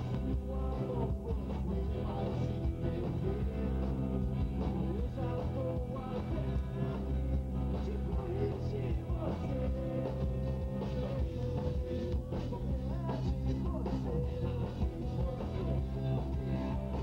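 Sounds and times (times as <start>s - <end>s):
man singing into microphone: 0.0s - 4.0s, 4.6s - 17.0s
bass guitar: 0.0s - 17.0s
electric guitar: 0.0s - 17.0s
punk rock band playing live: 0.0s - 17.0s.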